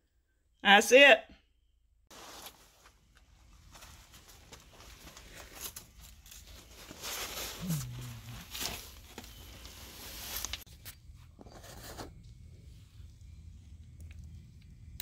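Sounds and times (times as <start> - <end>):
cardboard rustling and scraping: 2.1 - 12.2.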